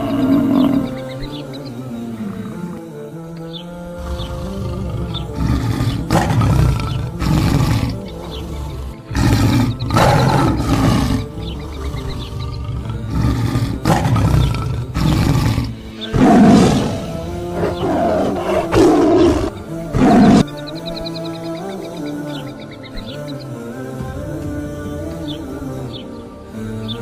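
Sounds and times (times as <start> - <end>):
big cat roaring and growling: 0.0 - 1.0, 4.0 - 20.5
background music: 0.0 - 27.0.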